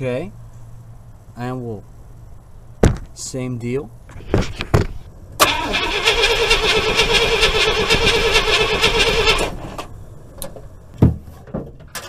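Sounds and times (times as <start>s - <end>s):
engine starter cranking: 5.4s - 9.9s.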